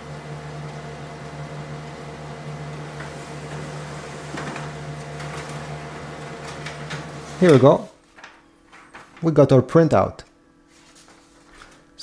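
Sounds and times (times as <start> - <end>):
printer motors humming: 0.0 - 8.0.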